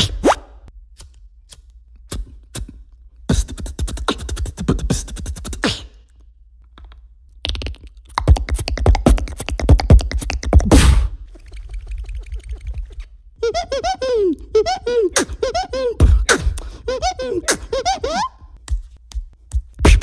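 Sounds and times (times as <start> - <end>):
beatboxed mouth clicks and pops: 1.0 - 13.1, 15.1 - 20.0.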